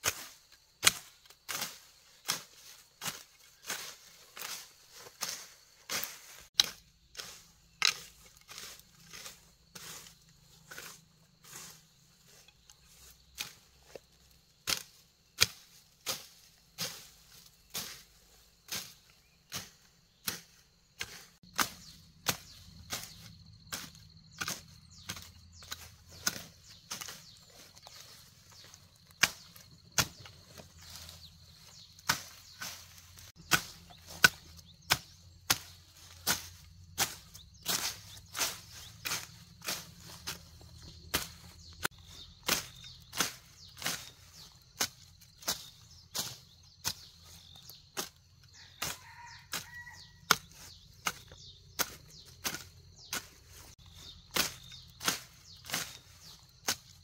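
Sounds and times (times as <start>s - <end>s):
machete chopping weeds: 0.0s - 57.0s.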